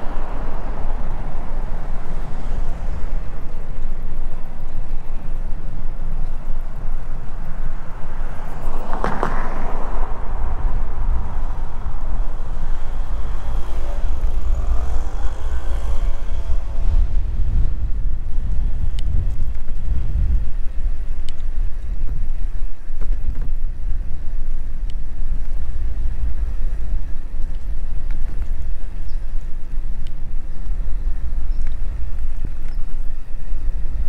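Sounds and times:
wind rumble on microphone: 0:00.0 - 0:34.0.

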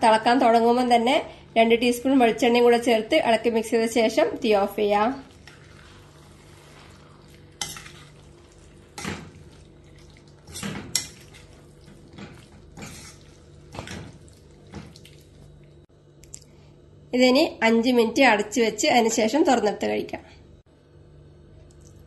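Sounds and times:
spatula scraping a steel pan: 0:05.4 - 0:08.2, 0:12.8 - 0:13.3.

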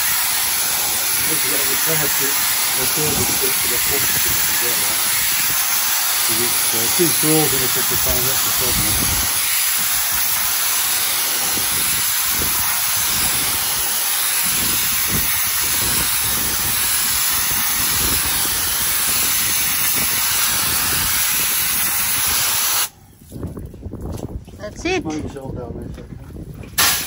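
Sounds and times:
pressure washer spray hissing: 0:00.0 - 0:22.9, 0:26.8 - 0:27.0.

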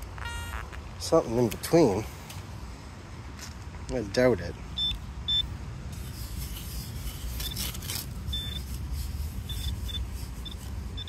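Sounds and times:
short high beeps: 0:00.2 - 0:00.8
sand scraping and rustling: 0:05.9 - 0:11.0.

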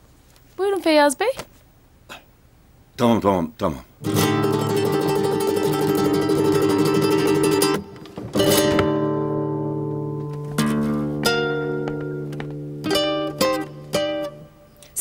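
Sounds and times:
plucked string instrument strumming: 0:04.0 - 0:14.6.

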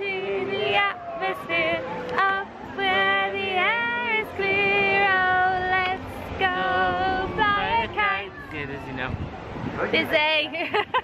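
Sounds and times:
woman singing long held notes: 0:00.0 - 0:08.3.

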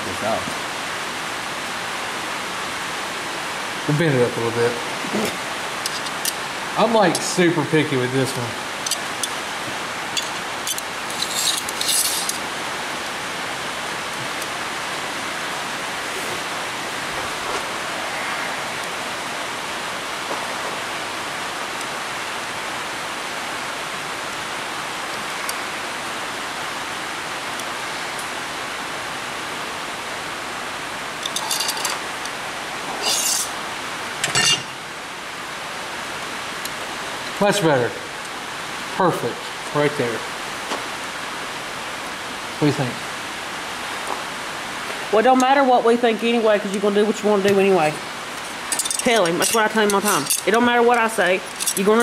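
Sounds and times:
rain on a tin roof: 0:00.0 - 0:52.0
handling clinks and clatters: 0:10.1 - 0:12.4, 0:31.2 - 0:32.0, 0:33.0 - 0:33.6, 0:48.4 - 0:50.6, 0:51.4 - 0:52.0.

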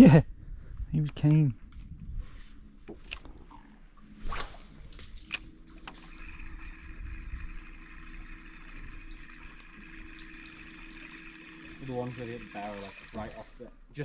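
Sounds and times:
electric motor humming and whining: 0:05.4 - 0:13.8.

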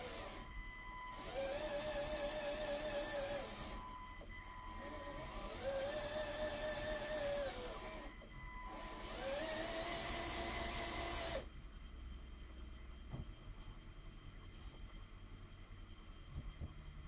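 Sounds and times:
electric motor whining: 0:00.0 - 0:11.5.

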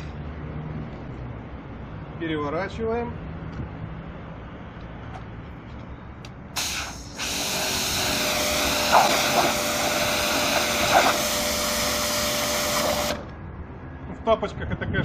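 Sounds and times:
pressure washer jet hissing: 0:06.6 - 0:13.3.

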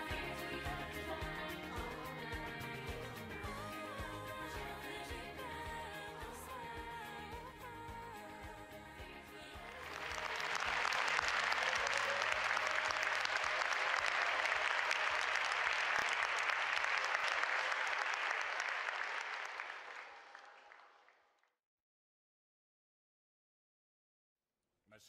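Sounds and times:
audience applauding: 0:09.6 - 0:21.3.

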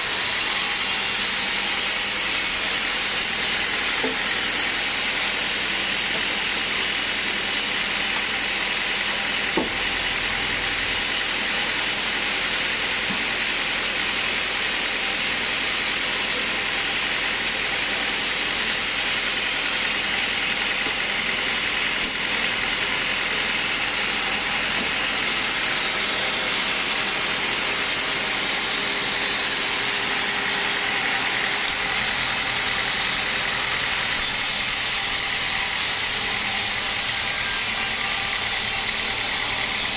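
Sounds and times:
band saw blade hissing: 0:34.2 - 0:39.9.

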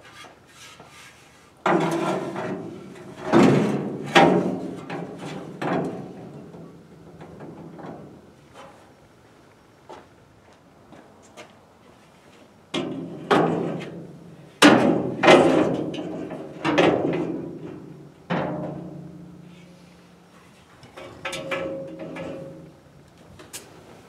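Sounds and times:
metal clangs on steel frame: 0:14.6 - 0:19.5, 0:20.9 - 0:22.7.

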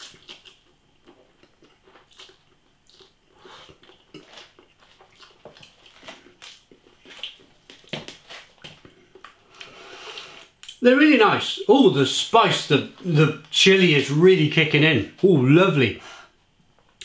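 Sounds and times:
person slurping and chewing noodles: 0:00.0 - 0:08.6.

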